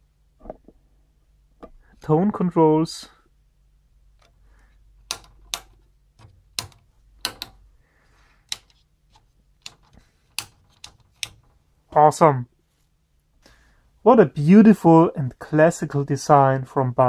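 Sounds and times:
switches and knobs clicking: 0:04.1 - 0:07.7, 0:08.4 - 0:11.6.

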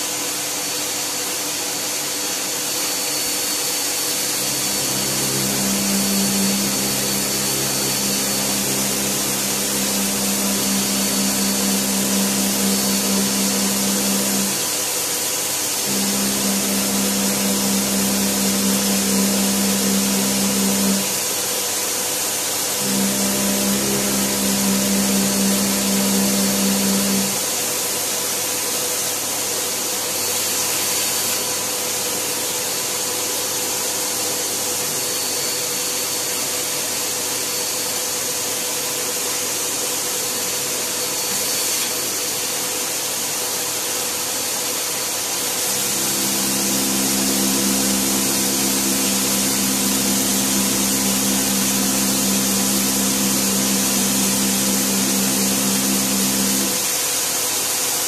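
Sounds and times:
vacuum cleaner running: 0:00.0 - 0:58.0
cordless drill boring into wall: 0:02.7 - 0:21.4, 0:22.5 - 0:27.7, 0:44.8 - 0:57.7.

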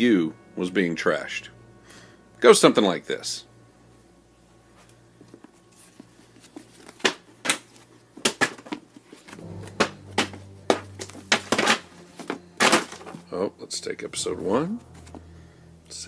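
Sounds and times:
books thudding as they land: 0:07.0 - 0:10.3, 0:11.3 - 0:13.2
books sliding and rustling: 0:10.8 - 0:13.2.

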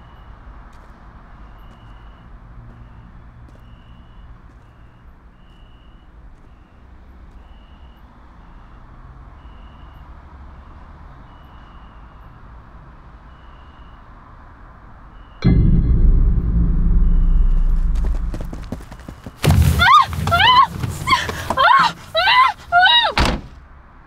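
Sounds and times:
low rumble: 0:15.4 - 0:21.0.

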